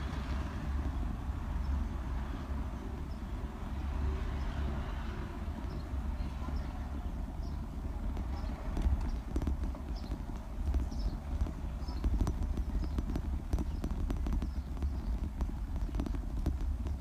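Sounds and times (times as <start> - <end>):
bicycle rumbling over brick paving: 0.0 - 17.0
sharp clicks and rattles: 5.6 - 17.0.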